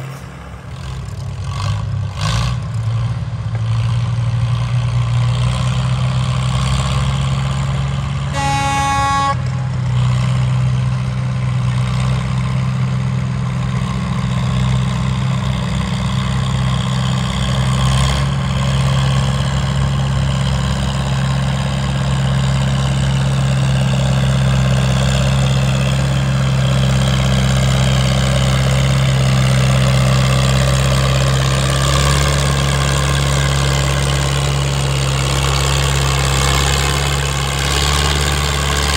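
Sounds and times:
tractor engine running under load: 0:00.0 - 0:38.9
horn sounding: 0:08.3 - 0:10.0.

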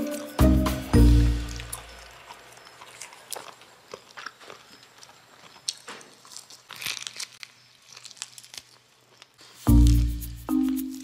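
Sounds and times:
chewing and crunching meat: 0:01.4 - 0:10.2.

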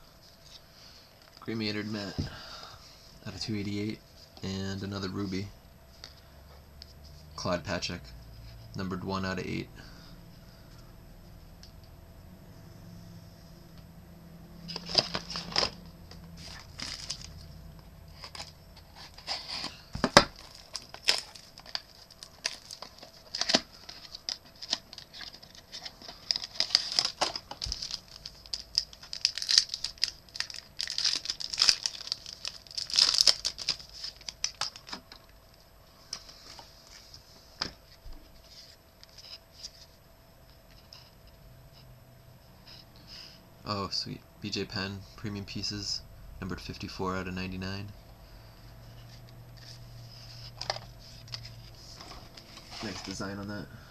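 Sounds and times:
cards being handled: 0:14.6 - 0:17.5
wrapper tearing and crinkling: 0:14.7 - 0:15.8, 0:16.4 - 0:17.5, 0:20.2 - 0:35.0.

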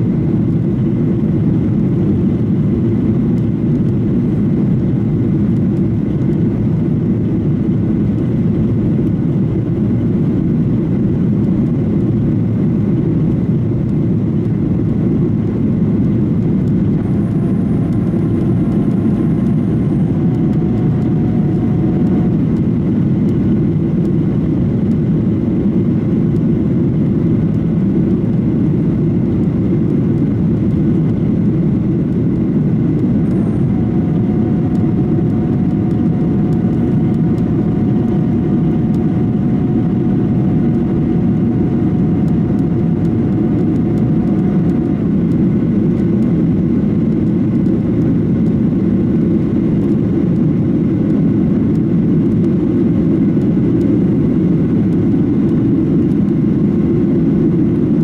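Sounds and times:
jet engine cabin drone: 0:00.0 - 0:58.0.

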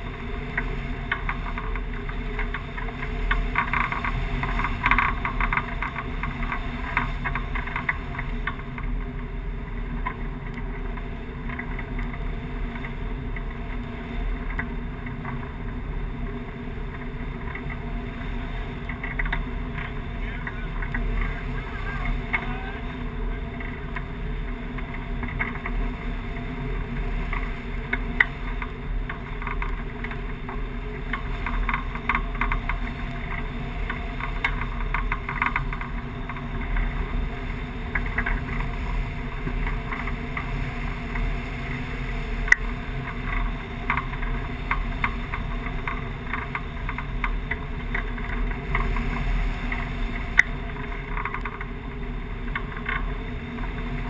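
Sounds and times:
sharp ticks: 0:16.9 - 0:54.0.

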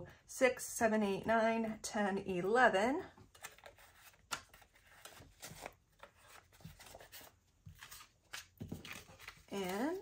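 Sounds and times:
paper bills rustling: 0:03.4 - 0:10.0.

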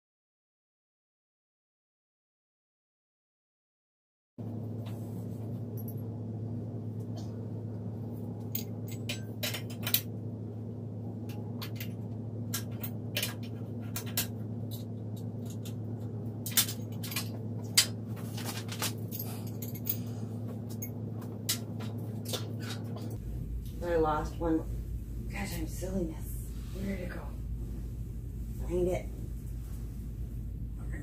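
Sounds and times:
steady low hum: 0:04.4 - 0:31.0
furniture parts clicking and clinking: 0:11.3 - 0:23.2.

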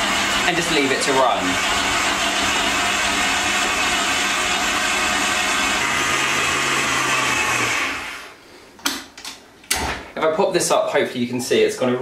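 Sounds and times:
stand mixer running: 0:00.0 - 0:08.3.

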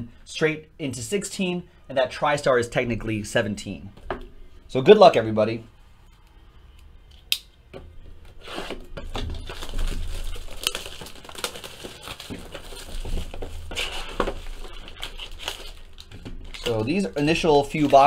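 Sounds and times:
plastic shrink-wrap tearing: 0:08.4 - 0:18.0.

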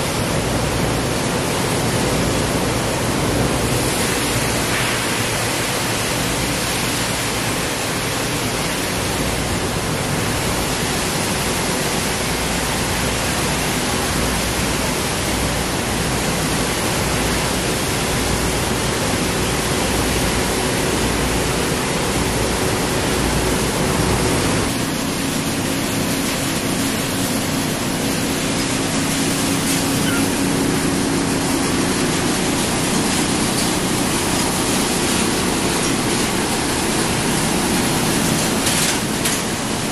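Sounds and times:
machine hum: 0:00.0 - 0:39.9.

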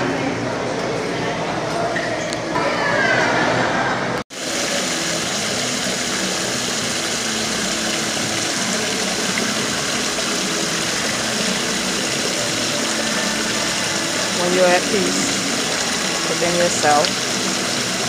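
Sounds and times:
fountain water splashing: 0:04.3 - 0:18.0.

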